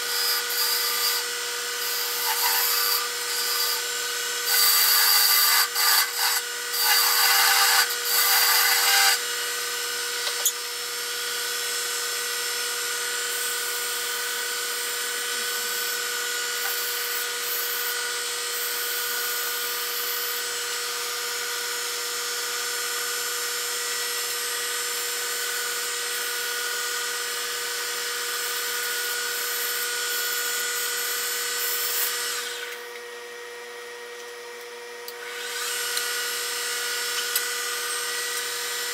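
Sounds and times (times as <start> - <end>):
wood lathe running: 0.0 - 19.2, 35.2 - 38.9
sandpaper on turning wood: 1.9 - 3.8
hand tool scraping spinning wood: 2.1 - 3.1.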